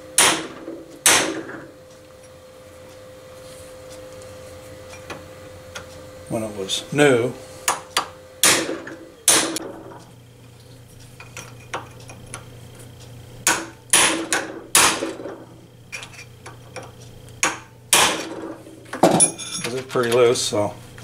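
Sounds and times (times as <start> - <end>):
hammer striking chisel on metal: 0.2 - 1.4, 7.7 - 9.6, 13.4 - 15.0.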